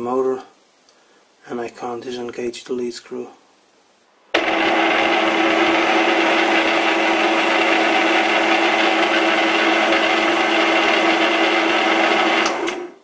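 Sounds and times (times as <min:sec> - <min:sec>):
metal lathe running: 0:04.4 - 0:12.9.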